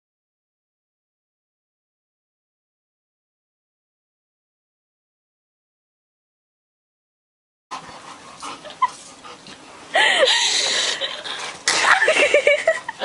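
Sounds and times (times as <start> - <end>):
dog whining and yelping: 8.0 - 9.5.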